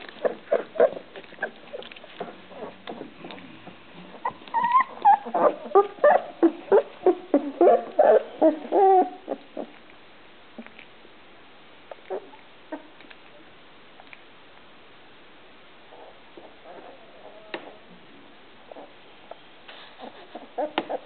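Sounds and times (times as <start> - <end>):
puppies whimpering and squeaking: 0.0 - 9.8, 15.9 - 17.9, 18.7 - 21.0.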